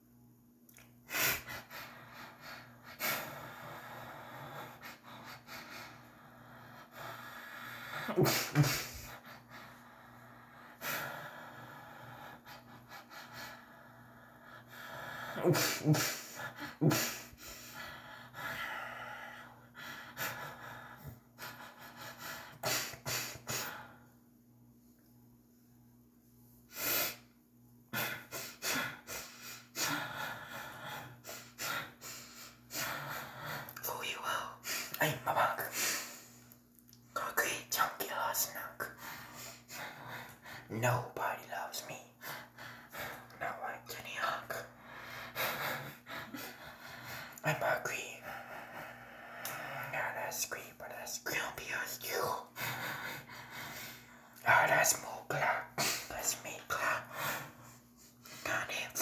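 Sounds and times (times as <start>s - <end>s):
person breathing and gasping: 1.1s - 24.0s.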